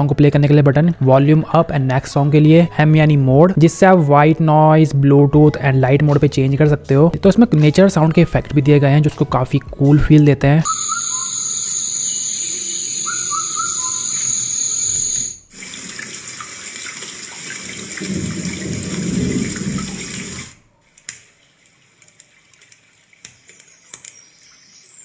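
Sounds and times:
steady high whine: 10.7s - 15.5s
rushing water-like hiss: 19.3s - 20.6s.

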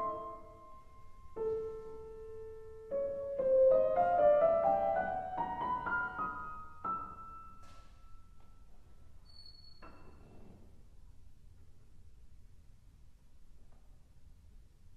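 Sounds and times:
grand piano notes: 0.0s - 9.0s.

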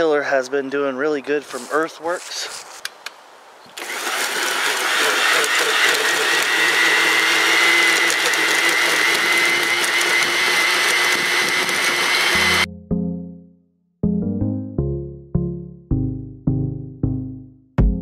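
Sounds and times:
electric tiller motor whining: 3.8s - 12.7s
tines churning soil: 3.8s - 12.7s.

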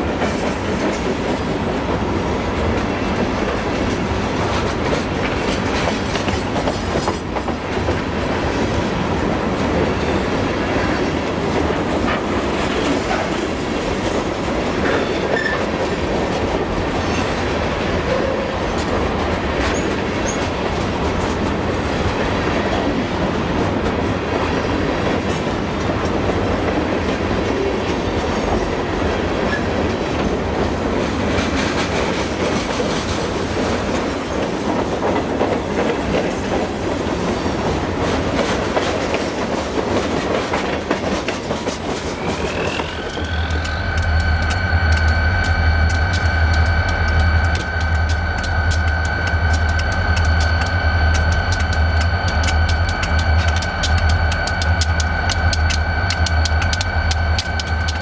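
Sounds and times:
freight train rumbling: 0.0s - 58.0s
wheels clacking over rails: 37.9s - 58.0s
high wheel squeal: 42.0s - 58.0s.

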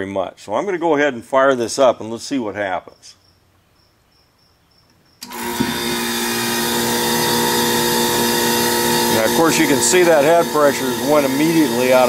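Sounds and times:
heat pump compressor humming: 5.2s - 12.0s.

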